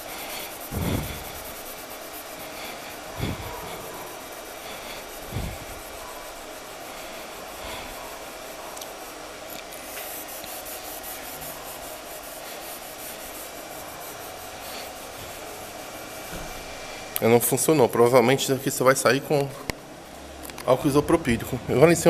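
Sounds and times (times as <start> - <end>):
cloth scrubbing car paint: 0.0 - 16.8.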